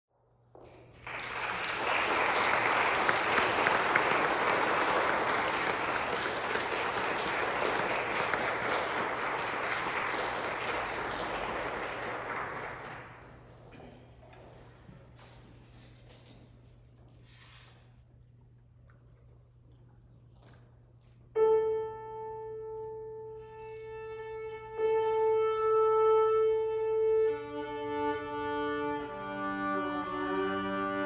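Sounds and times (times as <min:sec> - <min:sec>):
audience applauding: 0:00.8 - 0:13.7.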